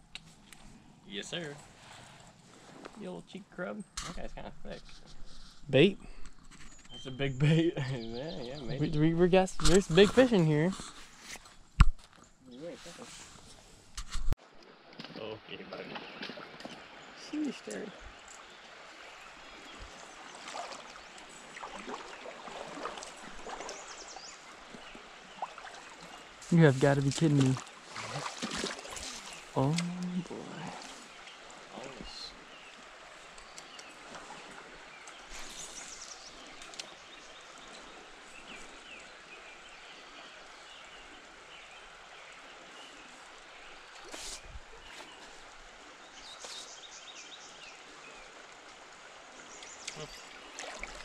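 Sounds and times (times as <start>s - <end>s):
small birds chirping: 0.2s - 13.6s, 15.2s - 48.4s, 49.4s - 51.0s
faint high ticks and squeaks: 6.2s - 7.3s, 33.3s - 34.0s
creek water gurgling: 14.4s - 51.0s.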